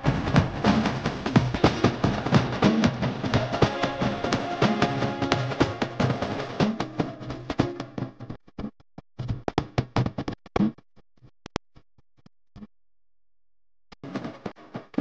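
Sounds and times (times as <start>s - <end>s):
music with drum beat: 0.0s - 8.2s
scattered drum strokes: 0.0s - 8.4s.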